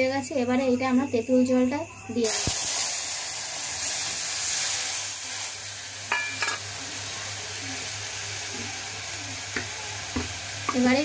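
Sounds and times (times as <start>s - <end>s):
liquid sizzling in hot oil: 2.2s - 11.0s.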